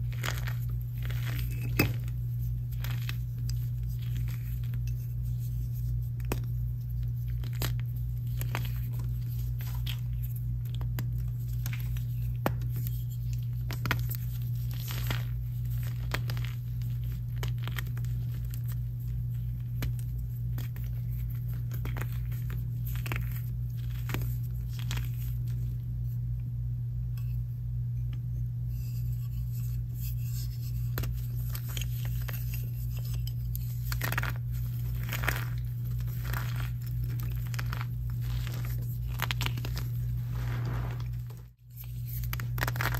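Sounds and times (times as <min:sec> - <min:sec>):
chalk crunching and cracking: 0:00.0 - 0:25.7, 0:29.2 - 0:42.9
steady low hum: 0:00.0 - 0:42.9.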